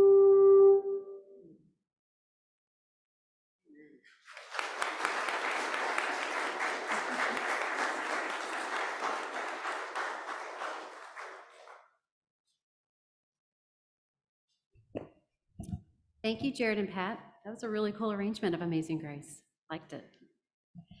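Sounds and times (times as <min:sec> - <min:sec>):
congregation clapping: 0:04.1 - 0:11.9.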